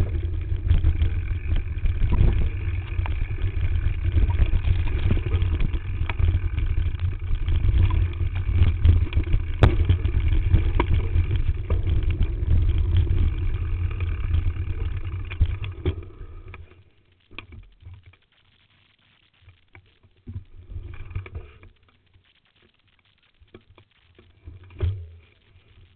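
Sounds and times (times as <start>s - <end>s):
bike rattles and knocks: 0.0s - 16.1s
bike trail vibration rumble: 0.0s - 17.0s.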